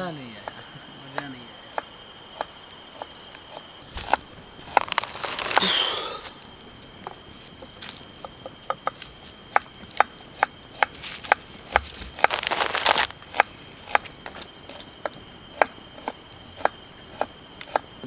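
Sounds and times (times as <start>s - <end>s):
night insects chorus: 0.0s - 18.0s
dense crackling: 3.9s - 6.3s, 12.2s - 13.2s.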